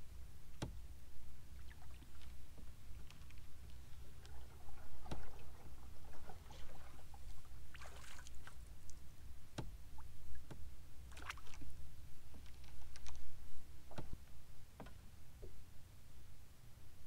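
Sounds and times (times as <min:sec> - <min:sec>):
low steady rumble: 0:00.0 - 0:17.0
water splashing: 0:01.6 - 0:09.0, 0:09.9 - 0:14.2.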